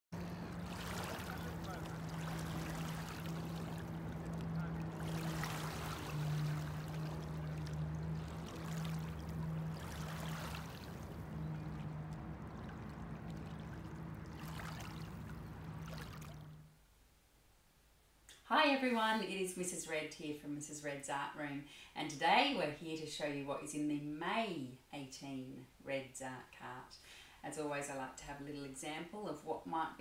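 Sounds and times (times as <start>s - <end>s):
low hum: 0.1s - 16.9s
water lapping over pebbles: 0.2s - 16.7s.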